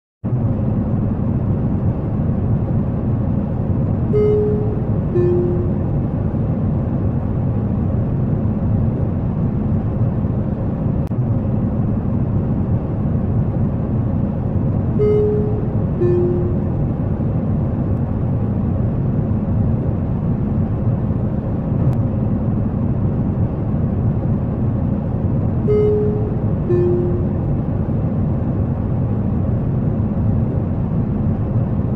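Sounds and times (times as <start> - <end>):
airliner engine and airflow rumble: 0.2 - 31.9
two-note cabin chime: 4.1 - 6.0, 15.0 - 16.9, 25.7 - 27.6.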